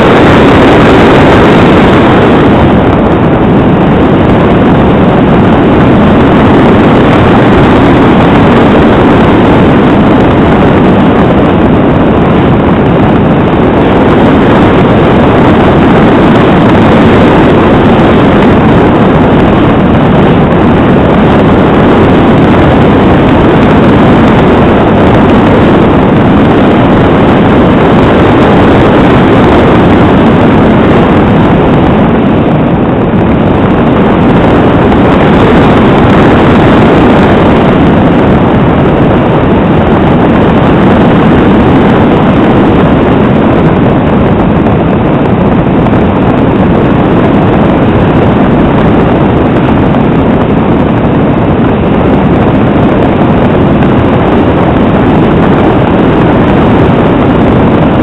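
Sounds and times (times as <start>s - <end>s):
rushing air: 0.0s - 58.0s
small aircraft engine drone: 0.0s - 58.0s.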